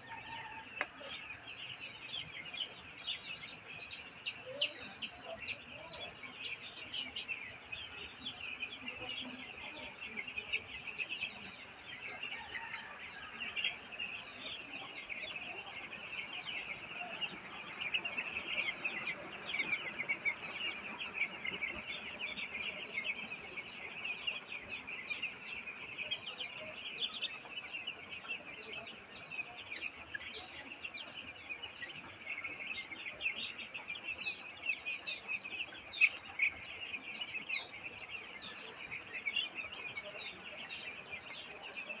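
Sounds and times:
chicks peeping: 0.0 - 42.0.

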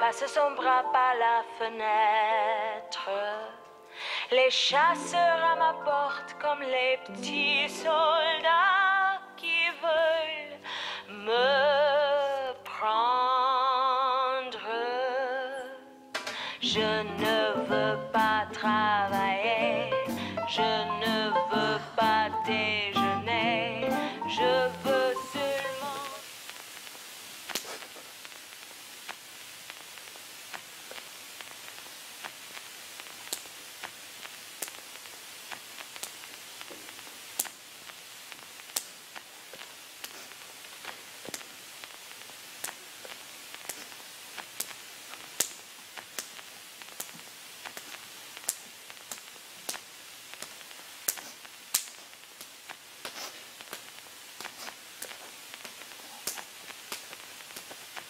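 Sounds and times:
static hiss: 0.0 - 58.0
static clicks and pops: 16.1 - 58.0.

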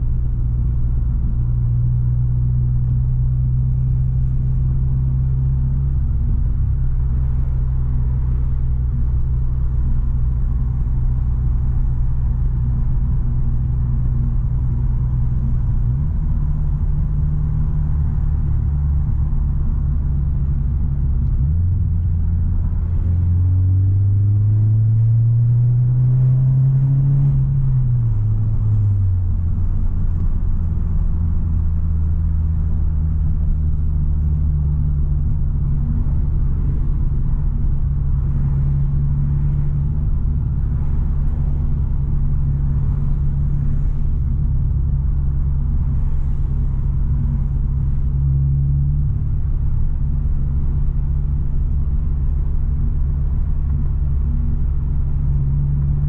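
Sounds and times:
car engine and exhaust droning: 0.0 - 56.0.

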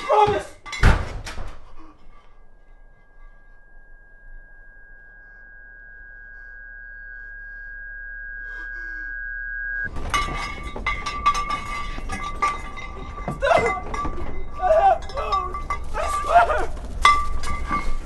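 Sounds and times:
low hum: 1.2 - 13.3
high-pitched ringing tone: 1.8 - 9.9.

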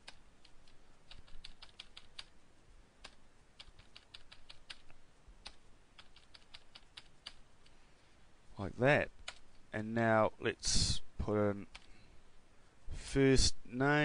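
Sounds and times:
keyboard typing clicks: 0.0 - 2.3, 3.0 - 7.4, 9.2 - 9.6.

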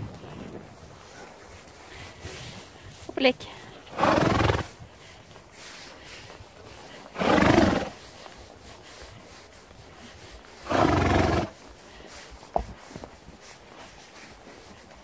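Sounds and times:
horse blowing through nostrils: 3.8 - 9.3, 10.0 - 12.3.

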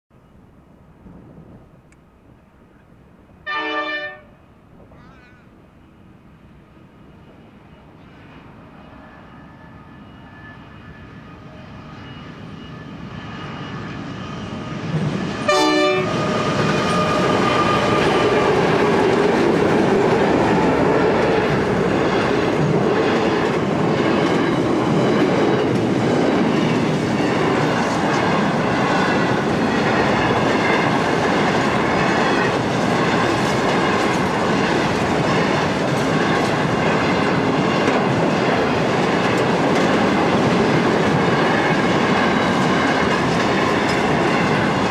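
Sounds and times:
train horn blast: 3.4 - 4.4, 15.4 - 18.6
locomotives approaching: 11.3 - 44.9.

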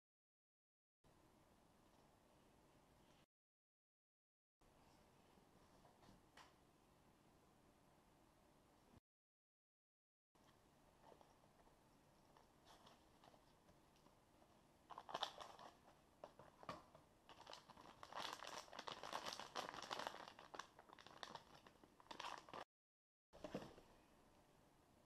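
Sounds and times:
plastic bag crinkling: 14.9 - 22.7.

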